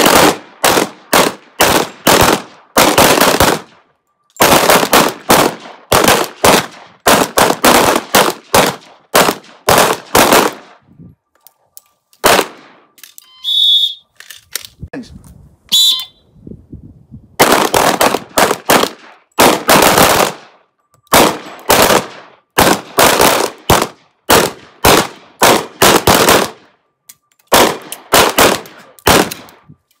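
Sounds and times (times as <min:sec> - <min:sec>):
pistol shots: 0:00.0 - 0:10.8, 0:12.2 - 0:12.9, 0:17.4 - 0:26.7, 0:27.5 - 0:29.7.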